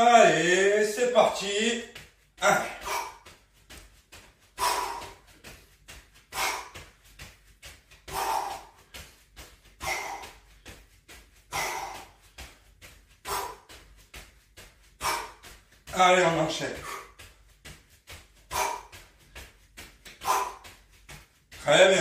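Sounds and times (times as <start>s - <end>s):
feet landing taps: 1.2s - 22.0s
man breathing out hard: 2.4s - 3.3s, 4.6s - 5.4s, 6.3s - 6.9s, 8.1s - 9.0s, 9.8s - 10.5s, 11.5s - 12.2s.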